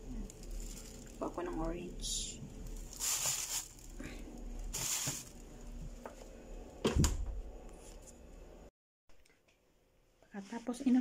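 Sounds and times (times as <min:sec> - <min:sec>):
rustling and handling noise: 0:00.0 - 0:06.4.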